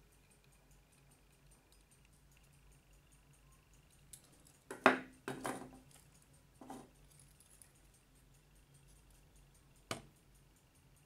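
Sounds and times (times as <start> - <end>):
clock ticking fast: 0.0 - 11.0
metallic clinks and knocks: 3.9 - 8.0.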